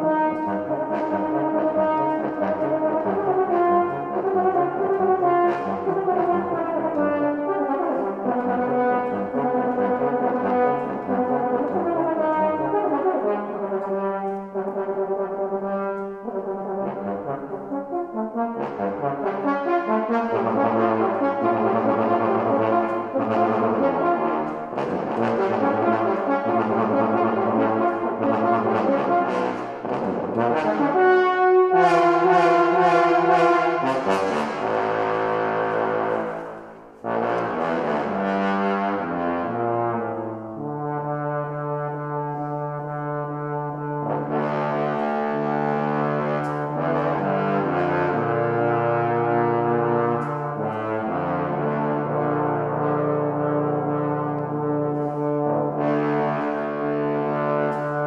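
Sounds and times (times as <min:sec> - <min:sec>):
bass trombone low notes: 0:00.0 - 0:58.0
tenor trombone: 0:00.0 - 0:58.0.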